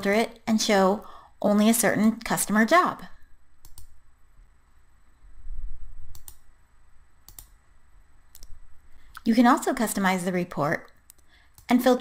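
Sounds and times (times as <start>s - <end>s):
computer mouse clicks: 3.6s - 4.0s, 6.1s - 6.5s, 7.2s - 7.6s, 10.8s - 11.7s.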